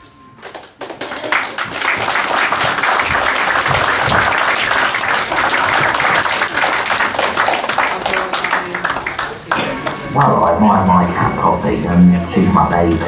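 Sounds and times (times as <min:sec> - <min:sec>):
audience applauding: 0:00.4 - 0:10.4.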